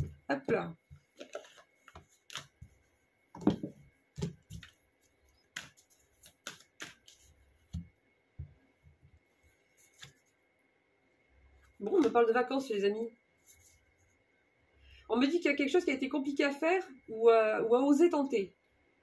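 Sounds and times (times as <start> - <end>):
cards shuffling: 1.1 - 7.9, 9.8 - 10.3.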